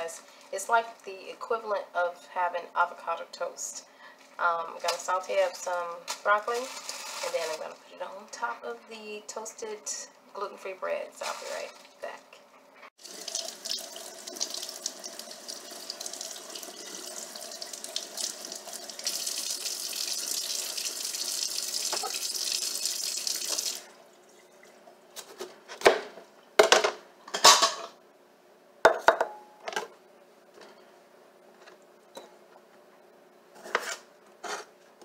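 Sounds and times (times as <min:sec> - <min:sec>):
faucet water running: 0:13.0 - 0:24.9.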